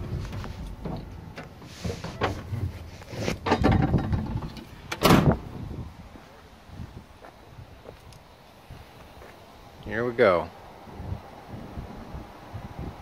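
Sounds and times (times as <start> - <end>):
knocks and clunks climbing from truck: 0.0 - 5.5
loud thump: 3.4 - 5.5.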